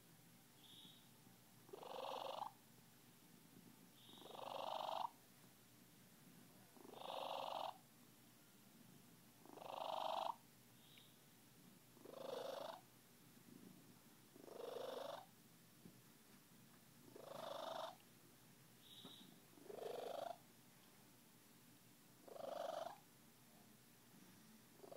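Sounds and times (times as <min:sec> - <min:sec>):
cat purring: 0:01.7 - 0:02.6, 0:04.1 - 0:05.2, 0:06.8 - 0:07.8, 0:09.4 - 0:10.4, 0:12.0 - 0:12.9, 0:14.3 - 0:15.3, 0:17.1 - 0:18.0, 0:19.6 - 0:20.4, 0:22.2 - 0:23.0.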